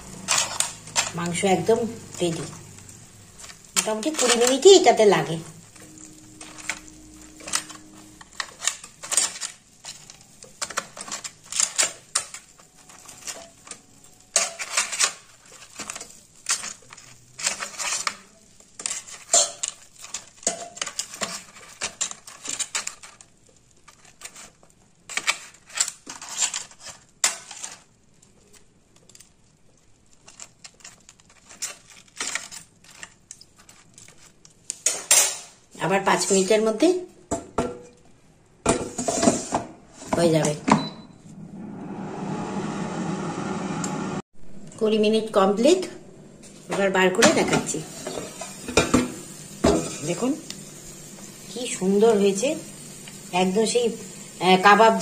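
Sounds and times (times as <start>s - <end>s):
metal fork clinking and scraping: 0.2s - 1.2s, 5.7s - 23.3s.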